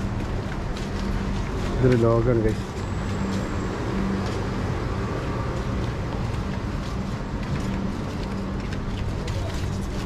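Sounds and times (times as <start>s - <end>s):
street background noise: 0.0s - 10.0s.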